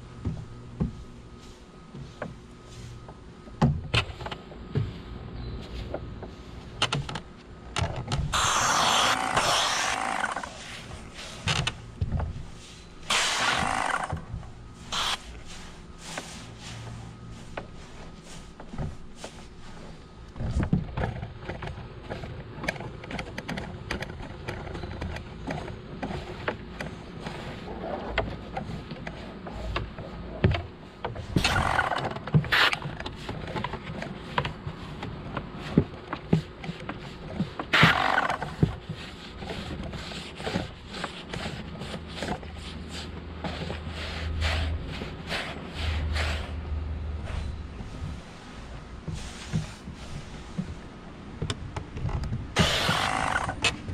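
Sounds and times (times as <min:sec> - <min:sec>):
brush scrubbing wooden boards: 0:00.3 - 0:03.6, 0:08.3 - 0:20.6, 0:26.0 - 0:51.2, 0:52.5 - 0:53.9.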